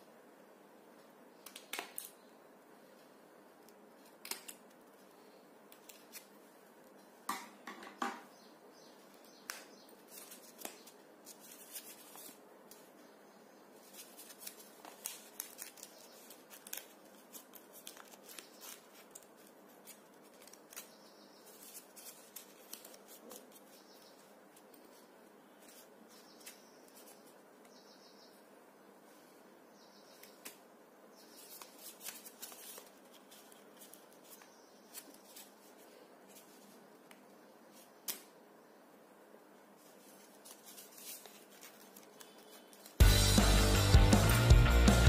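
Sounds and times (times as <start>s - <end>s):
paper crackling and rustling: 10.0s - 12.9s, 13.8s - 27.4s, 31.3s - 36.8s, 39.8s - 43.0s.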